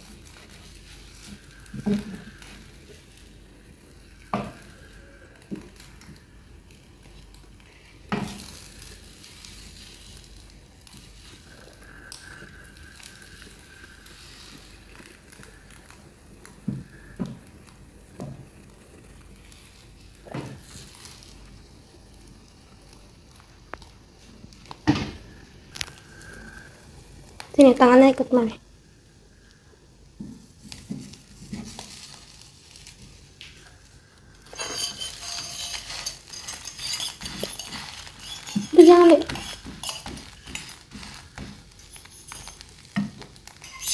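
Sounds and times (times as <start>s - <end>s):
egg sizzling in a pan: 0.0s - 43.9s
spatula scraping a pan: 34.4s - 43.9s.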